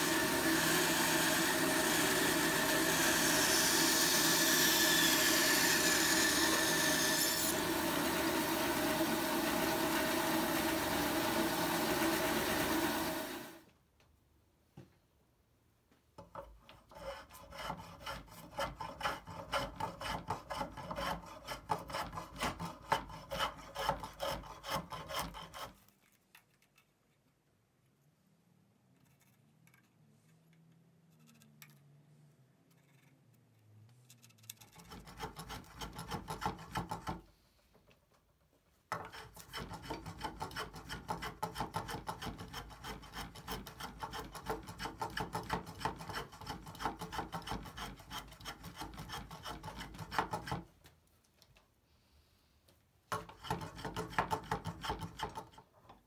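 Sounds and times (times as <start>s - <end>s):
hand plane shaving wood: 0.0s - 13.6s, 16.3s - 25.9s, 34.8s - 37.2s, 38.9s - 50.7s, 53.1s - 55.7s.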